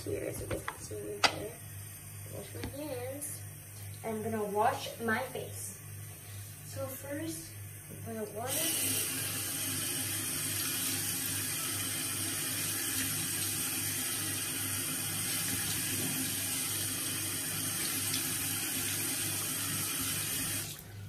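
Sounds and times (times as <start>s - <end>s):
tap running into sink: 0.3s - 1.5s, 15.4s - 16.6s
face being washed: 8.5s - 20.8s.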